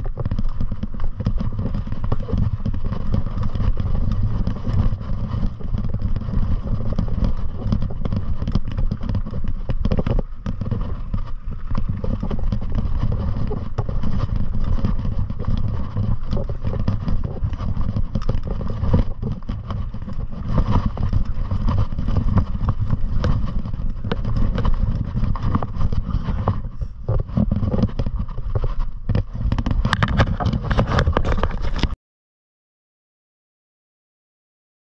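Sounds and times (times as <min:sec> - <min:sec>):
rattles and knocks from riding: 0:00.0 - 0:32.0
wind rumble on microphone: 0:00.0 - 0:32.0.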